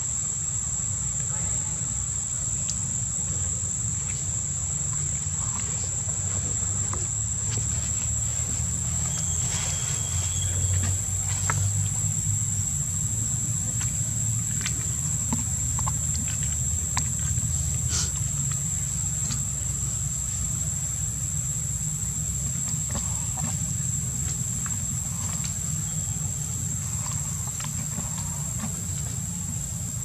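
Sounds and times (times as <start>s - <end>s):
high-pitched insect drone: 0.0s - 30.0s.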